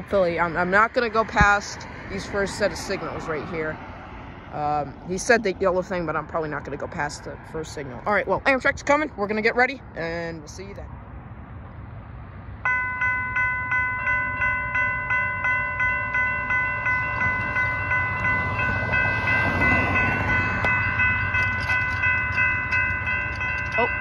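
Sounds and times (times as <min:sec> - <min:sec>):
railroad crossing bell dinging: 0:12.6 - 0:24.0.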